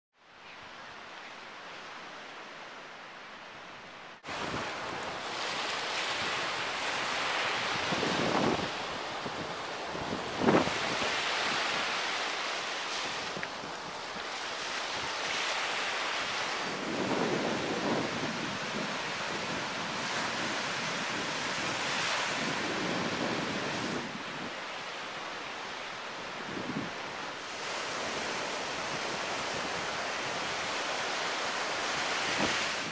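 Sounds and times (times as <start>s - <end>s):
ocean surf breaking: 4.2s - 32.9s
wind buffeting microphone: 4.3s - 12.0s, 16.6s - 24.6s.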